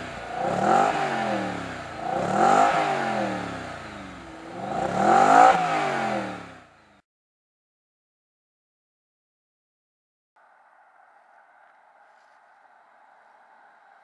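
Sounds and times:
car engine revving: 0:00.0 - 0:07.0.

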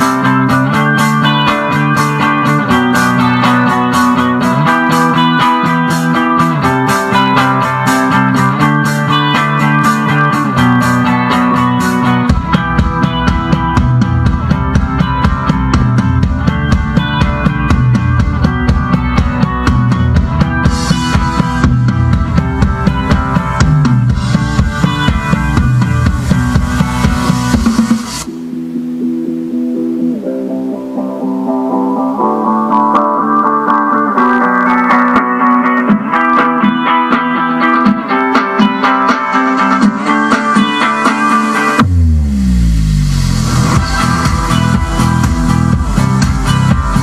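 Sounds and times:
guitar music from car stereo: 0:00.0 - 0:47.0.

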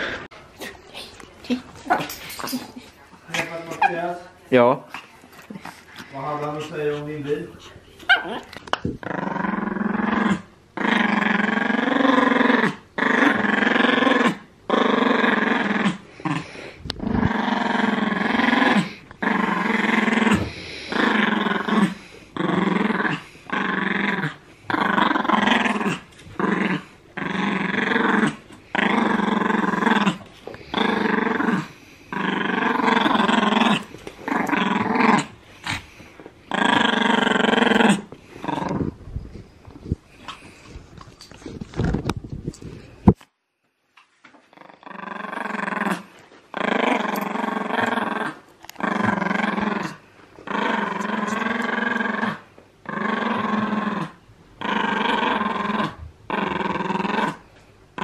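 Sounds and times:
dog play-growling: 0:00.0 - 0:43.2, 0:44.0 - 0:58.0.

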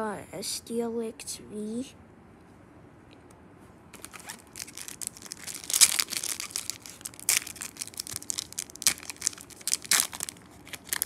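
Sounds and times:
foil wrapper crinkling and tearing: 0:04.0 - 0:11.0.

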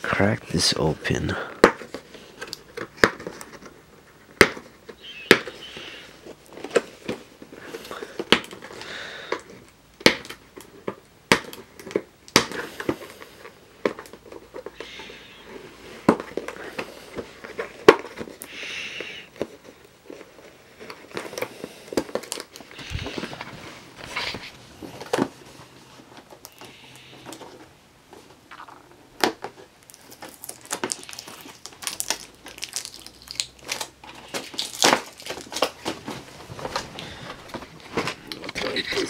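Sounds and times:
paper rustling and crinkling: 0:01.7 - 0:08.9, 0:19.3 - 0:39.0.

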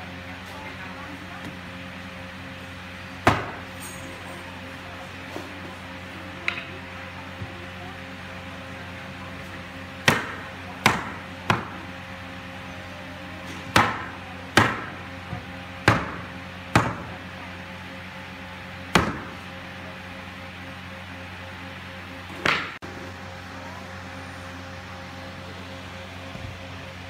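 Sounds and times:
hammer striking wood: 0:03.2 - 0:03.6, 0:10.0 - 0:11.8, 0:13.7 - 0:14.9, 0:15.8 - 0:17.1, 0:18.9 - 0:19.4.

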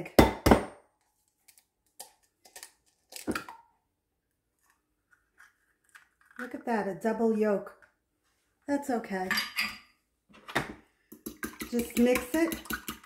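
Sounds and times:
egg rapped on glass bowl: 0:11.1 - 0:13.0.

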